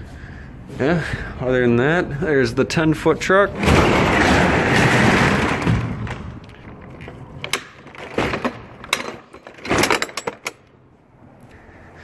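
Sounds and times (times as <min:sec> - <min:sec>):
metal roll-up door clanking: 0:03.5 - 0:10.7.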